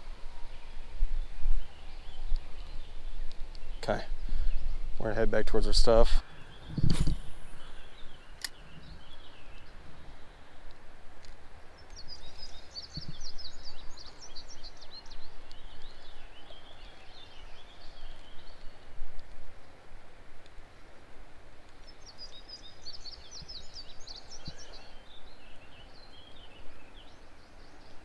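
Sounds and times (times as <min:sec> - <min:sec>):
songbird chirping: 0:00.0 - 0:28.0
sharp click: 0:08.4 - 0:08.6.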